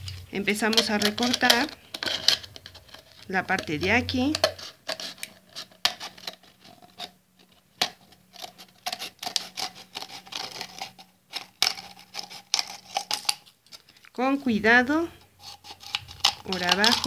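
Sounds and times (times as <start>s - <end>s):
scissors snipping plastic bottle: 0.0s - 7.1s, 15.4s - 17.0s.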